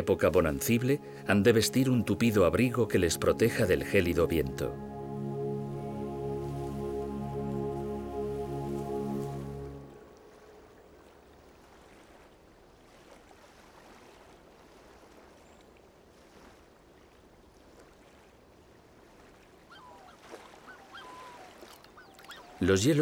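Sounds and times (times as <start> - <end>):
flowing water rushing: 0.0 - 23.0
bird calls: 19.7 - 23.0.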